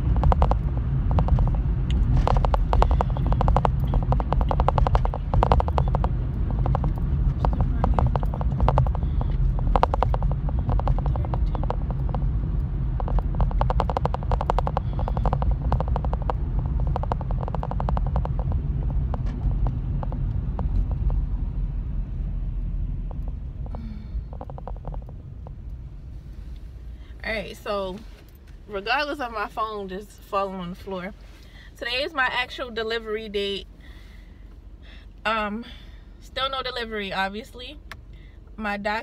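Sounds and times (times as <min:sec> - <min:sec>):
rattle of small clicks: 0:00.0 - 0:21.3, 0:23.0 - 0:25.8
car engine and road rumble: 0:00.0 - 0:39.0.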